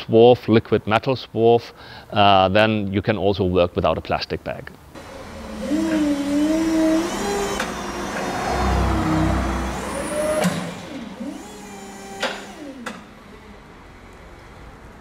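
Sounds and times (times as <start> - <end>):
forklift motor whine: 5.0 - 13.7.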